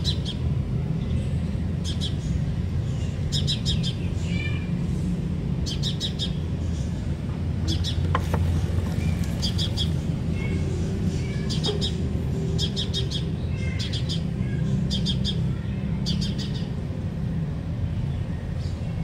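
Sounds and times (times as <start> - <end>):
small bird chirping: 1.0 - 4.6, 7.7 - 16.8.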